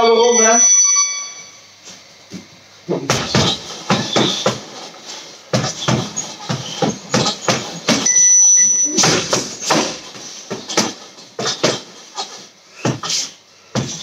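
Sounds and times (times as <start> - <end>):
gloved punches on heavy bag: 3.1 - 4.8, 5.5 - 8.1, 9.0 - 11.9.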